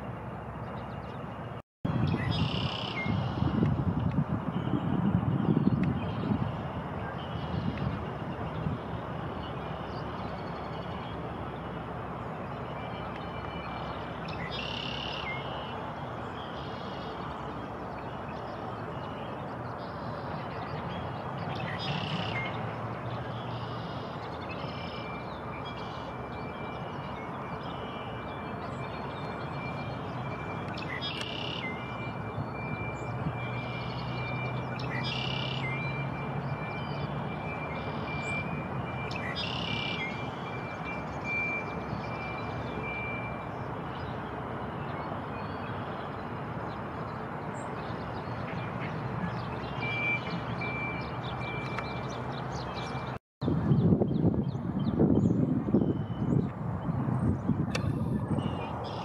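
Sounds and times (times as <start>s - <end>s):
traffic rush: 0.0s - 59.0s
wind noise: 1.9s - 9.1s, 53.4s - 58.8s.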